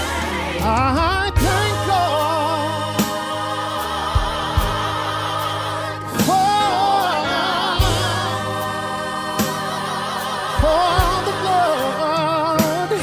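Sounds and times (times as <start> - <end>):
backing singers: 0.0 - 13.0
electric keyboard chords: 0.0 - 13.0
man singing lead: 0.6 - 3.1, 6.2 - 8.3, 10.6 - 13.0.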